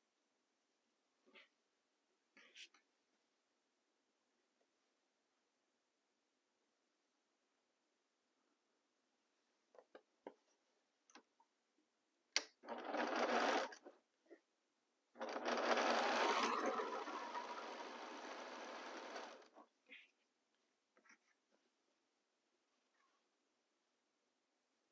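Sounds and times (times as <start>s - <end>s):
sewing machine stitching: 12.4s - 14.0s, 15.2s - 19.6s.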